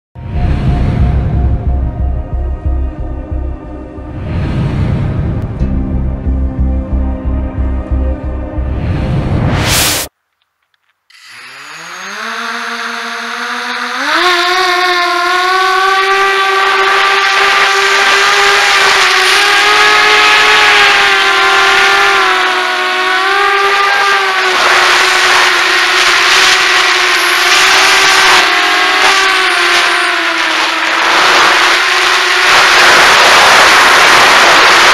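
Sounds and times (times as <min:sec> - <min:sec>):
quadcopter motors whining: 0:11.1 - 0:34.9.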